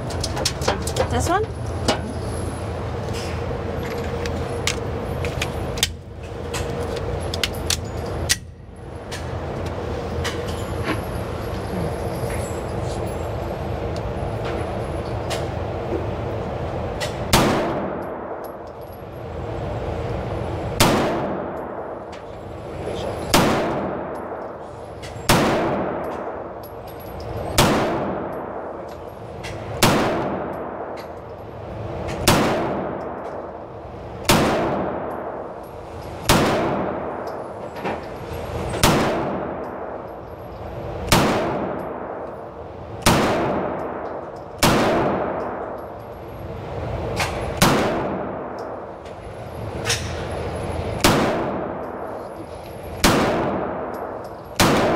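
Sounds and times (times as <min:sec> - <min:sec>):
pistol shots echoing indoors: 0:17.3 - 0:18.6, 0:20.8 - 0:22.0, 0:23.3 - 0:24.5, 0:25.3 - 0:26.5, 0:27.5 - 0:28.7, 0:29.8 - 0:31.1, 0:32.2 - 0:33.6, 0:36.3 - 0:37.4, 0:38.8 - 0:40.0, 0:41.1 - 0:42.4, 0:43.0 - 0:45.9, 0:47.6 - 0:48.9, 0:51.0 - 0:52.2, 0:53.0 - 0:54.9.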